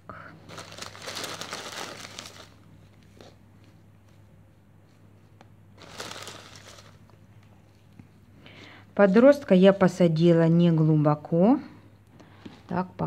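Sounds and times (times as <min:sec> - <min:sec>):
low steady hum: 0:00.0 - 0:13.0
dry moss rustling and crinkling: 0:00.5 - 0:02.9, 0:05.8 - 0:07.1.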